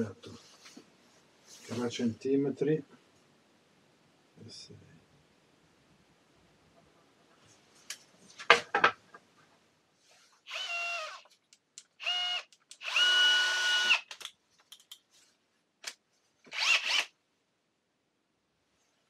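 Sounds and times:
electric drill whining: 10.5s - 11.2s, 12.0s - 14.1s, 16.5s - 17.1s.

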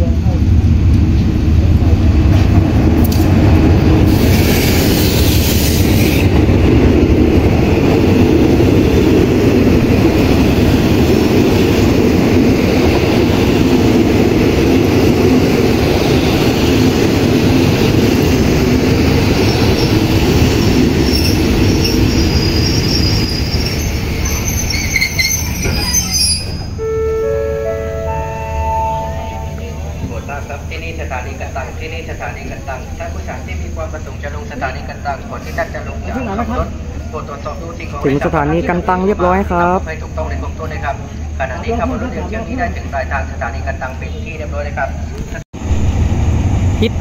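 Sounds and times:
train wheels rumbling on rails: 0.0s - 26.8s
faint high wheel squeal: 21.1s - 27.4s.

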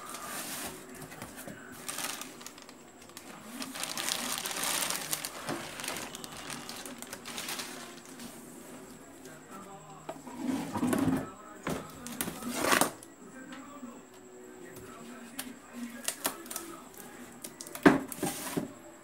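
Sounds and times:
plastic packaging crinkling: 0.0s - 8.4s, 15.9s - 17.8s
cardboard box rustling: 0.0s - 8.6s.

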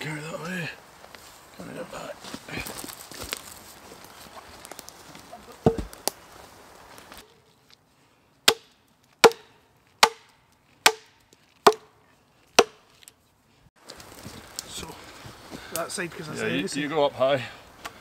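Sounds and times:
axe chopping into log: 5.6s - 6.0s, 8.5s - 11.9s, 12.6s - 12.8s.

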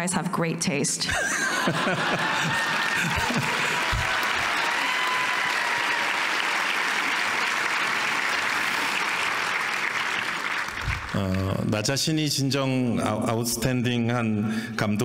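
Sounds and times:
audience applauding: 1.5s - 11.7s.

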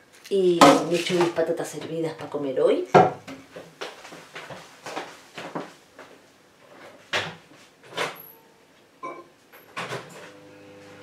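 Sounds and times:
short electronic beep: 8.4s - 9.3s.

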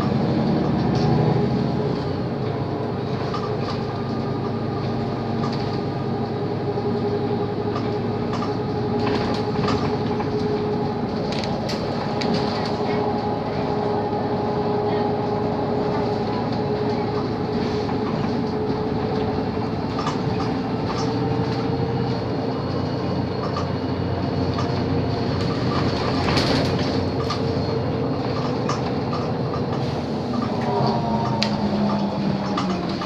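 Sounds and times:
bus drivetrain whine: 0.0s - 33.0s
tyres rumbling on cobblestones: 0.0s - 33.0s.

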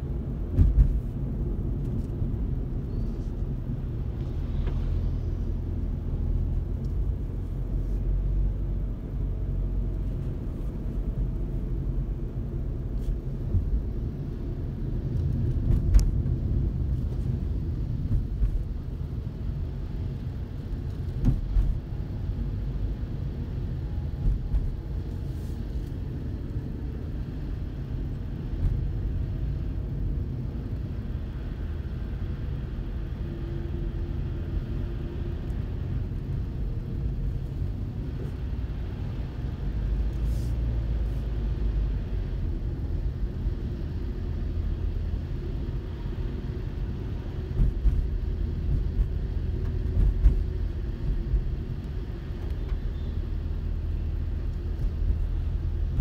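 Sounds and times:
car engine and tyres rumbling: 0.0s - 56.0s.

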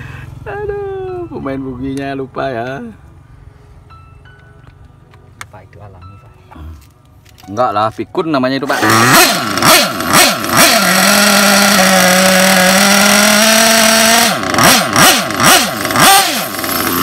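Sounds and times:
small engine revving: 8.7s - 17.0s.

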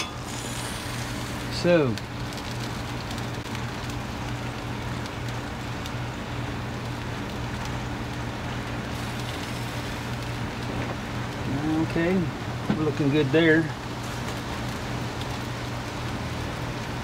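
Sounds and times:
even hiss: 0.0s - 2.0s
fan humming: 0.0s - 17.0s
faint crackles: 0.3s - 12.0s.

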